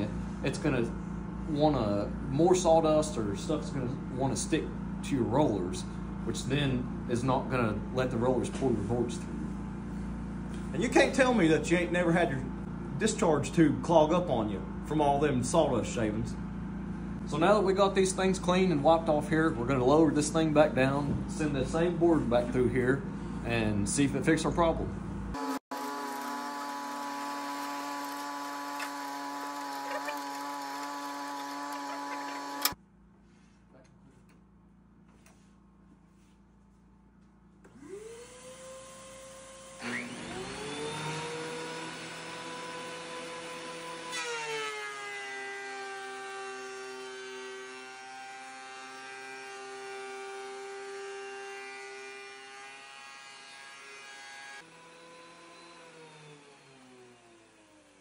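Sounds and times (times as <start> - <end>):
thickness planer motor whine: 25.4 - 32.8, 37.7 - 58.0.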